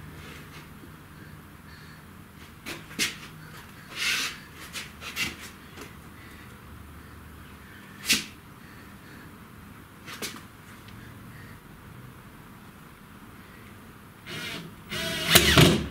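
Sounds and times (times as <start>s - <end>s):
cordless drill clicks: 14.3s - 15.8s.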